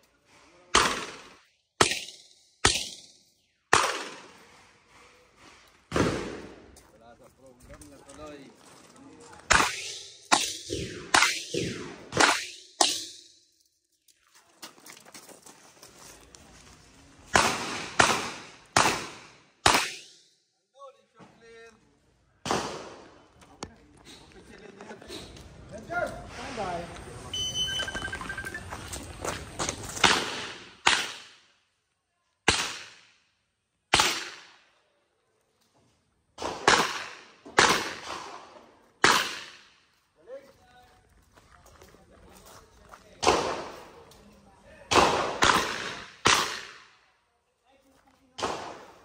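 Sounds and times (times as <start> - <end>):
revolver gunshots echoing: 0.7 - 4.4, 9.5 - 13.2, 17.3 - 20.2, 30.0 - 31.4, 32.5 - 33.1, 33.9 - 34.6, 36.4 - 39.7, 44.9 - 46.9
shuffling: 13.7 - 17.3.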